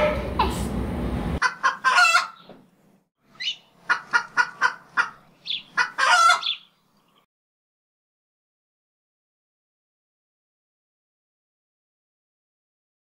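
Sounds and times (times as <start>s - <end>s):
chicken clucking: 1.4s - 2.5s, 3.4s - 6.6s.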